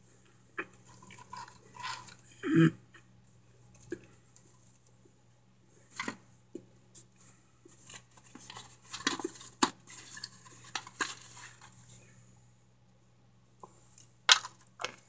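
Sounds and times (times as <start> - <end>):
brittle chunks crackling in foil pan: 0.9 - 2.2, 7.9 - 11.8, 14.3 - 15.0.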